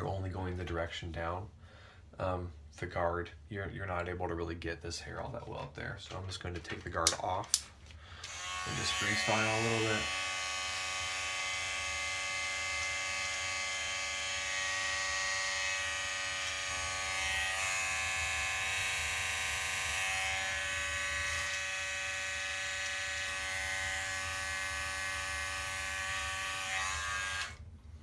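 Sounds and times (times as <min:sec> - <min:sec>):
electric hair clippers buzzing: 0:08.2 - 0:27.6.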